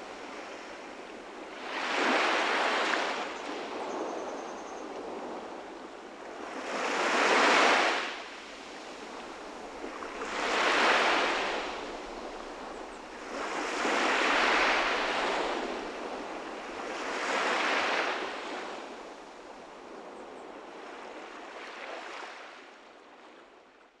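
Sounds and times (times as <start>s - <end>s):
sea waves washing onto shore: 5.4s - 19.9s.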